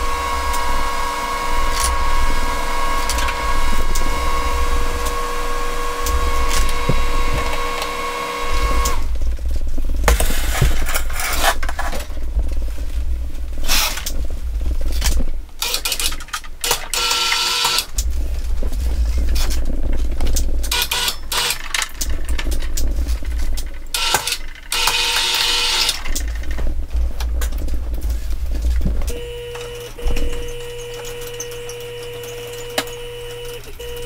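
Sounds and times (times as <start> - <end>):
low rumble: 0.0 - 7.7, 8.4 - 15.5, 17.9 - 20.7, 26.2 - 29.2
wheelchair motors whining: 0.0 - 9.2, 15.1 - 27.4, 28.0 - 34.0.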